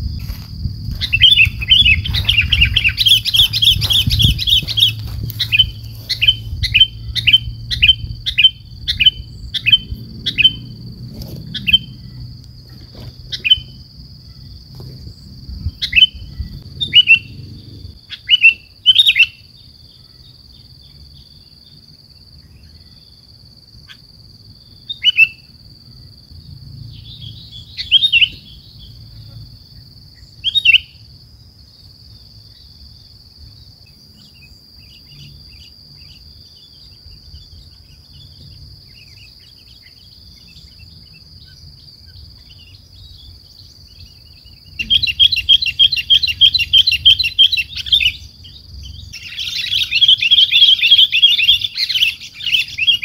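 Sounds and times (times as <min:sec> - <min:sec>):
bird calling: 0:00.9 - 0:15.0, 0:15.7 - 0:20.2, 0:27.0 - 0:29.4, 0:34.2 - 0:53.0
bird chattering: 0:01.0 - 0:10.6, 0:49.1 - 0:53.0.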